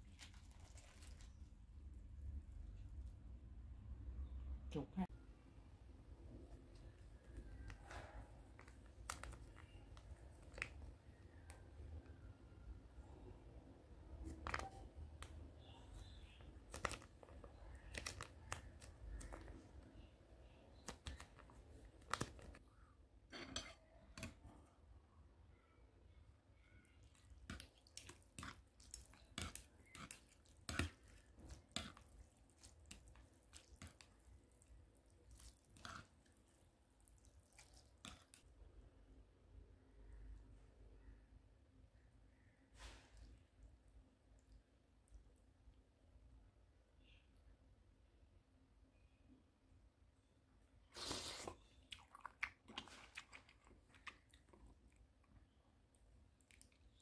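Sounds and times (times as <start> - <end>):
wet noodle sounds: 0.0 - 2.3, 6.1 - 24.9, 26.1 - 38.8, 50.9 - 57.0.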